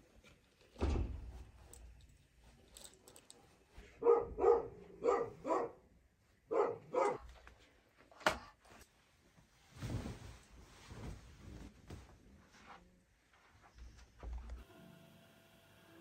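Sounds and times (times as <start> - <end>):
dog barking: 4.0 - 5.9, 6.5 - 7.2
quilt rustling: 9.3 - 12.7.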